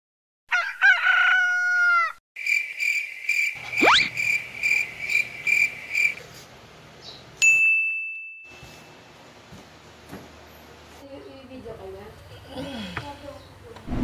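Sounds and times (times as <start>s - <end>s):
rooster crowing: 0.5s - 2.2s
crickets chirping: 2.4s - 6.2s.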